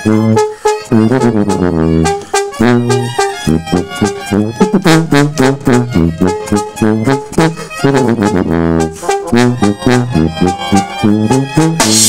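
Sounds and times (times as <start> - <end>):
brass band playing live: 0.0 - 12.0
tuba bass line: 0.0 - 12.0
drums keeping a steady beat: 3.6 - 12.0.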